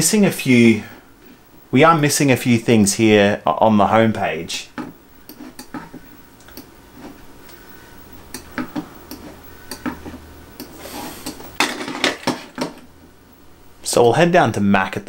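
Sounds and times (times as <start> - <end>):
computer mouse clicks: 6.4 - 6.7, 8.3 - 10.0.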